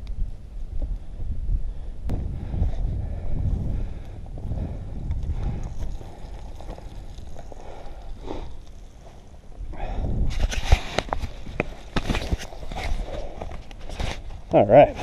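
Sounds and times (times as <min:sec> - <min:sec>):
wind buffeting microphone: 0:00.0 - 0:14.5
sharp crunches and clicks: 0:05.0 - 0:09.3, 0:10.3 - 0:14.6.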